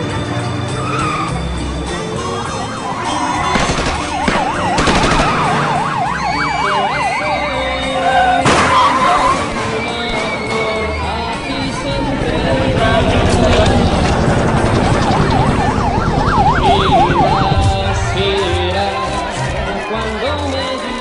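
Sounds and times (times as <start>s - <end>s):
background music: 0.0s - 21.0s
siren yelping: 2.0s - 18.9s
sudden loud noise: 12.3s - 19.3s.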